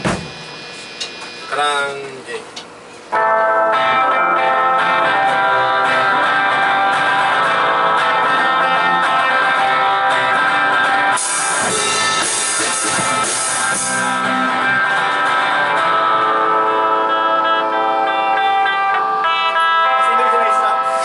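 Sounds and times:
rock band playing live: 0.0 - 2.0, 3.0 - 21.0
cymbals crashing: 11.2 - 14.8.

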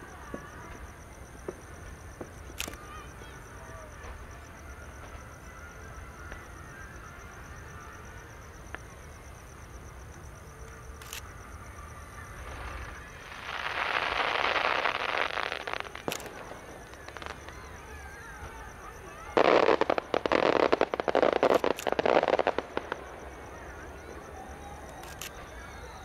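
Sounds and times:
distant fireworks pops: 0.0 - 6.6, 8.6 - 9.1, 12.4 - 25.6
fireworks crackling: 0.0 - 26.0.

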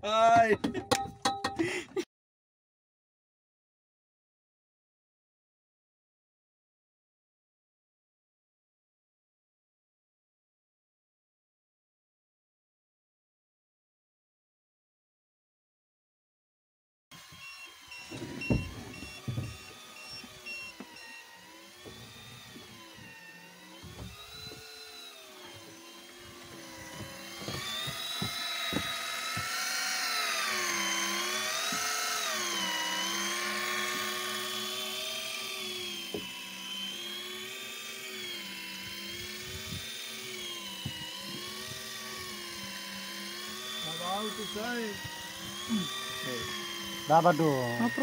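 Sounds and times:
electric fishing reel motor whining: 17.1 - 48.0.

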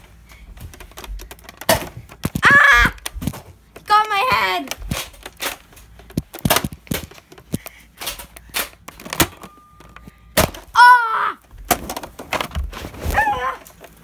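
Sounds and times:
child yelling: 10.8 - 11.4.

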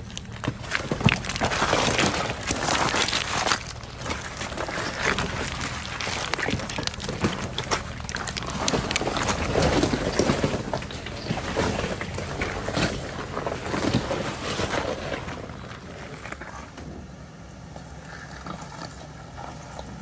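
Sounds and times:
tyres crunching on rock: 0.0 - 16.8
engine rumbling low: 0.0 - 20.0.

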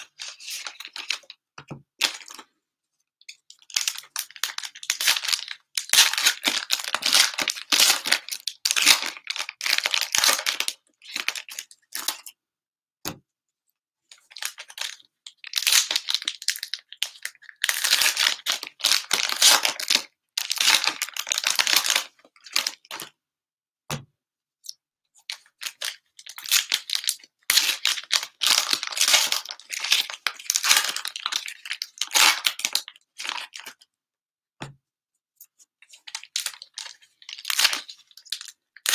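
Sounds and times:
foil wrappers tearing and crinkling: 26.4 - 33.6.

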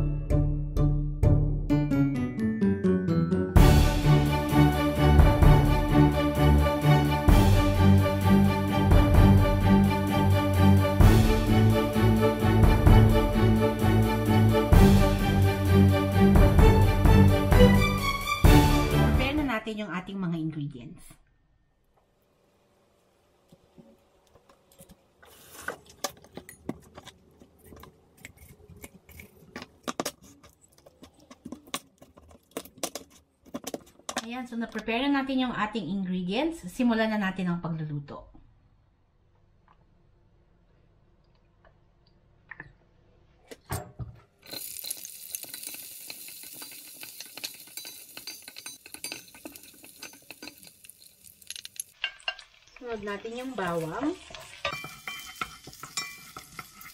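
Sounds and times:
wooden spoon scraping a pot: 25.2 - 34.1, 54.4 - 56.9
onion sizzling in hot oil: 44.4 - 56.9.

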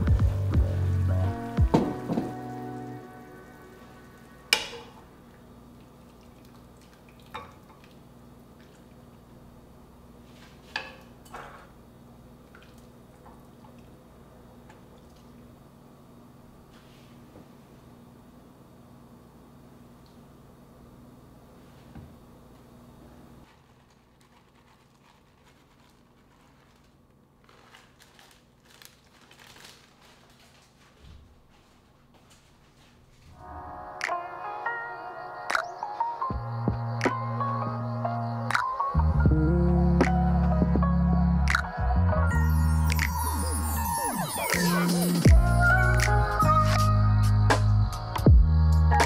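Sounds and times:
faint hum: 0.0 - 49.0
plastic bag rustling: 23.4 - 33.4.

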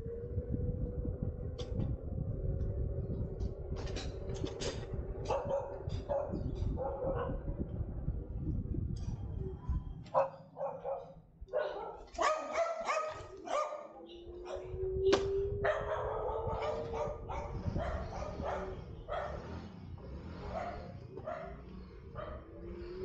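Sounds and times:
car driving rumble: 0.0 - 12.7, 14.4 - 23.0
dogs barking: 5.2 - 7.6, 10.1 - 19.8, 20.4 - 22.8.

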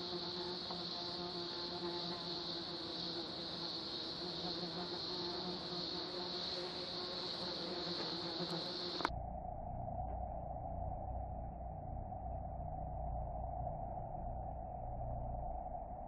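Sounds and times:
high-pitched insect chorus: 0.0 - 9.1
dull low steady hiss: 0.0 - 16.0
click: 8.9 - 9.1.

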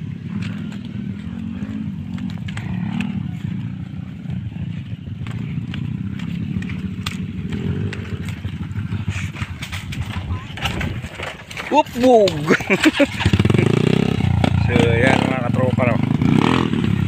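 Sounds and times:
small motorcycle engine: 0.0 - 17.0
clicks and rattles: 9.3 - 13.6.

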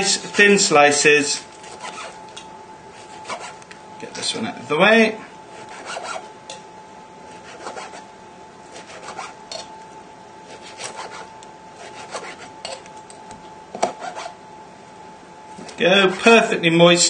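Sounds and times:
knife sawing through meat: 1.6 - 2.2, 2.9 - 3.6, 5.5 - 6.3, 7.3 - 8.1, 8.7 - 9.7, 10.5 - 12.8, 13.9 - 14.4, 15.7 - 16.4.

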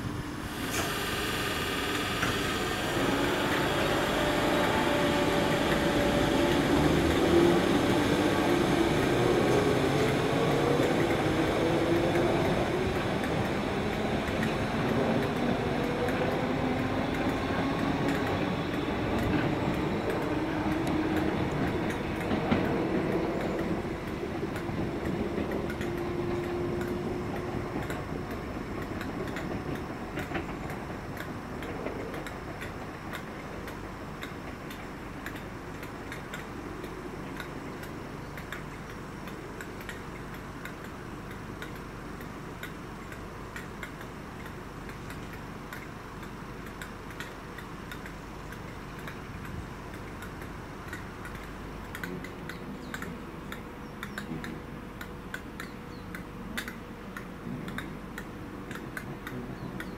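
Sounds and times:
electric train motor whine: 0.0 - 33.2
light ticking clicks: 11.8 - 17.4, 18.0 - 59.9.

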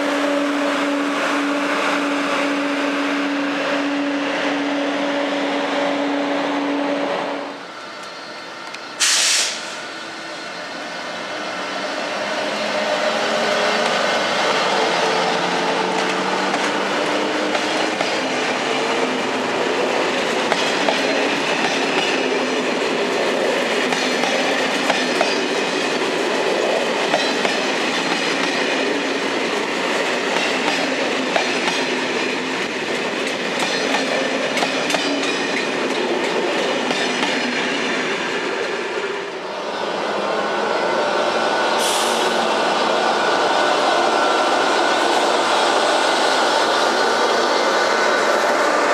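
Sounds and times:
electric locomotive tone: 0.0 - 32.9
train wheels rumbling: 0.0 - 48.9
clickety-clack over rail joints: 15.5 - 19.0, 20.1 - 38.0.

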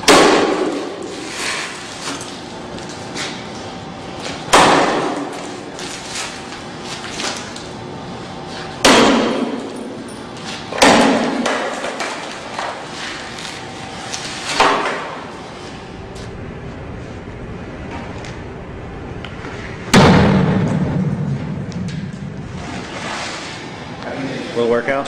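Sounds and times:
sledgehammer striking glass: 8.8 - 9.8, 10.7 - 11.8.

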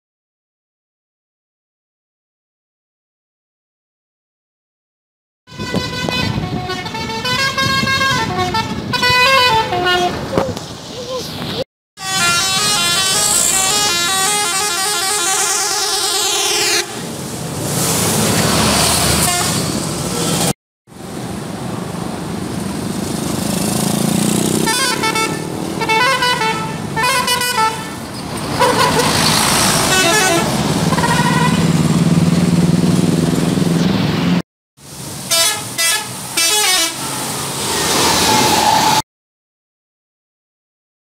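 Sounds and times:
musical air horn tune: 5.5 - 10.2, 12.0 - 17.0, 29.9 - 31.6, 35.3 - 37.1
bus engine rumble: 5.5 - 39.0.

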